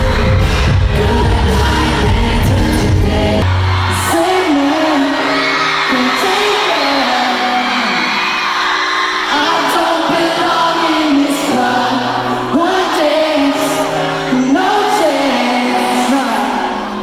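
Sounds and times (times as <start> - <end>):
band playing live: 0.0 - 7.9
person singing: 0.0 - 8.5, 9.2 - 17.0.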